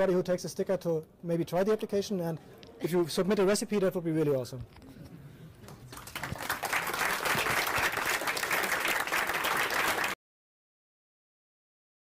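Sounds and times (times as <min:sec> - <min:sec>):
audience applauding: 0:05.7 - 0:10.2.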